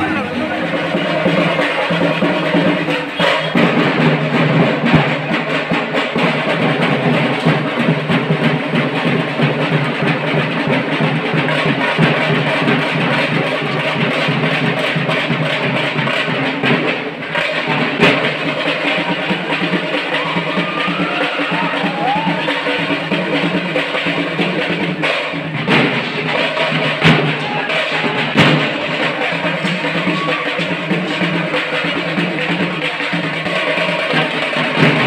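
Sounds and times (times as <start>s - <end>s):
loud music with heavy drumbeat: 0.0s - 35.0s.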